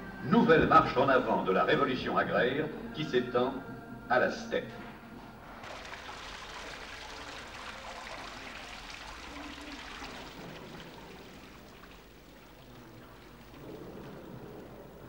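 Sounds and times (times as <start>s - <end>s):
fountain water splashing: 5.6s - 15.0s.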